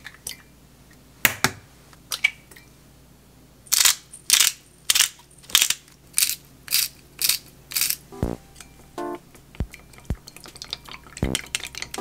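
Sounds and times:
pepper grinder crunching: 0:05.6 - 0:08.0.

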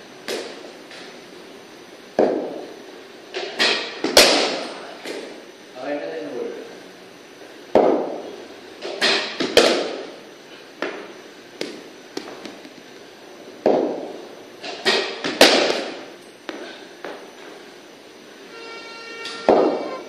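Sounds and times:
cricket ball cracks echoing: 0:14.9 - 0:16.0.

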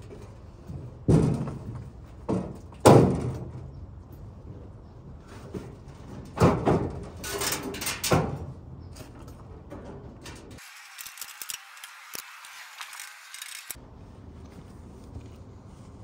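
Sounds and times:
sheet metal clanking and scraping: 0:05.5 - 0:10.6.

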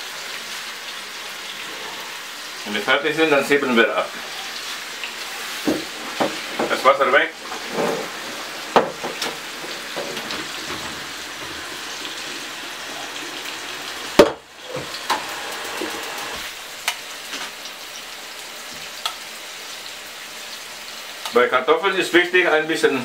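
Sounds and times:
frying sizzle: 0:00.0 - 0:23.0
loud knock: 0:08.7 - 0:09.3, 0:14.2 - 0:14.4.

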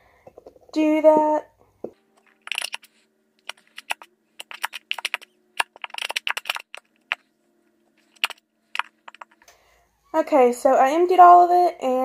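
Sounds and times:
plastic bottle clicking and crackling: 0:02.2 - 0:07.2
glue sputtering from nozzle: 0:02.4 - 0:07.2.

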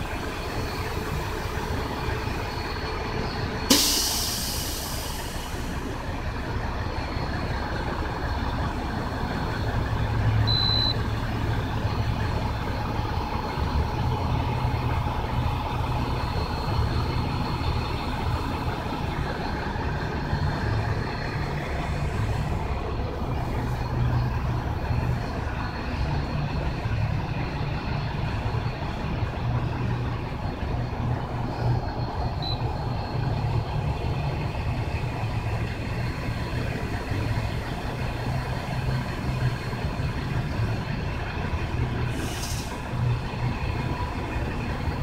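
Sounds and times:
short high beep: 0:10.5 - 0:11.0.

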